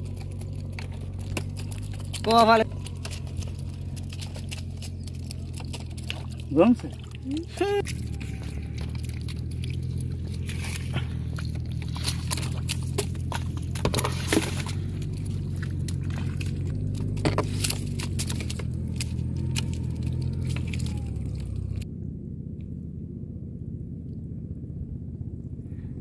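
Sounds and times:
sharp clicks and rattles: 0:00.0 - 0:06.8
steady low hum: 0:00.0 - 0:26.0.

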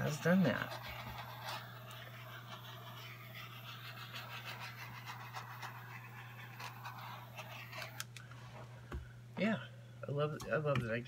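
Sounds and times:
paintbrush scrubbing on canvas: 0:00.0 - 0:08.0
steady low hum: 0:00.0 - 0:11.0.

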